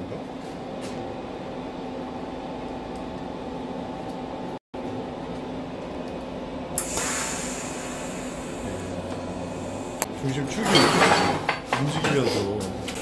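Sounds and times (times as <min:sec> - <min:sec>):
welding arc hiss and whine: 0:01.0 - 0:11.6
welding machine hum: 0:04.9 - 0:10.5.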